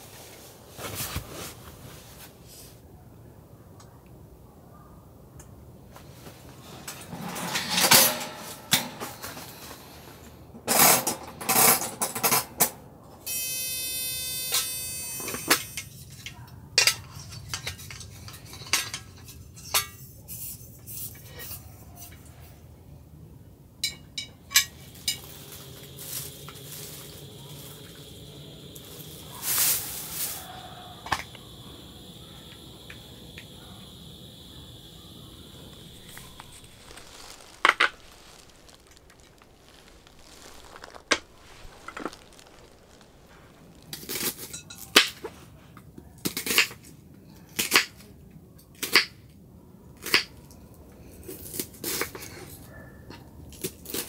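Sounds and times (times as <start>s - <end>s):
steady buzzing tone: 13.3s - 15.8s, 25.0s - 44.0s.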